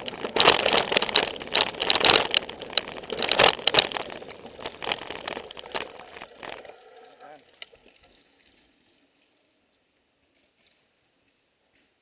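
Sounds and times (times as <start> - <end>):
mountain bike rattling: 0.0 - 8.7.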